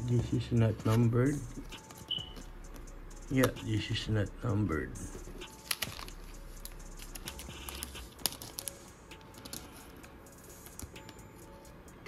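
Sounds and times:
cards clicking: 0:05.5 - 0:11.2
wrapper crinkling: 0:05.6 - 0:08.8.

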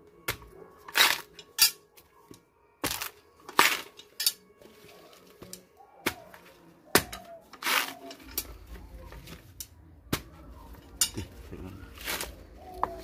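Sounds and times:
coconut husk scraping and tearing: 0:00.3 - 0:01.6, 0:02.8 - 0:13.0.

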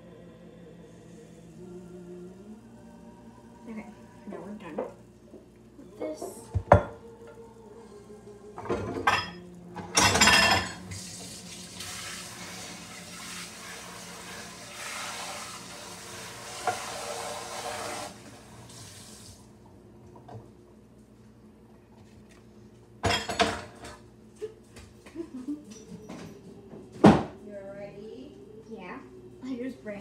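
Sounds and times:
dishes clattering: 0:06.6 - 0:07.0, 0:08.6 - 0:10.9, 0:23.0 - 0:24.0.

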